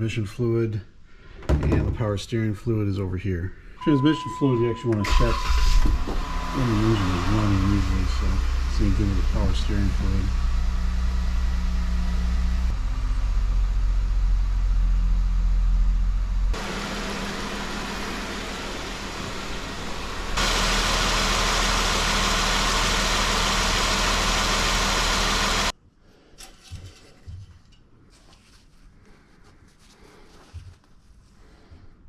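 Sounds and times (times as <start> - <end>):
car engine idling: 5.0 - 25.7.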